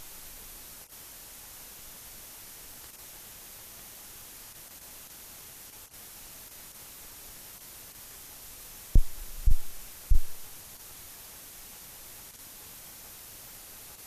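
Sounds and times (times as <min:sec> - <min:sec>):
steady background hiss: 0:00.0 - 0:14.0
short low thumps: 0:09.0 - 0:10.5.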